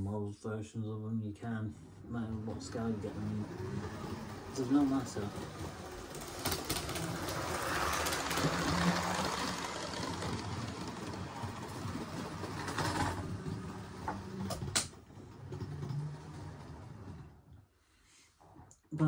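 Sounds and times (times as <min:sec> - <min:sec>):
model train running on track: 0:02.0 - 0:17.2.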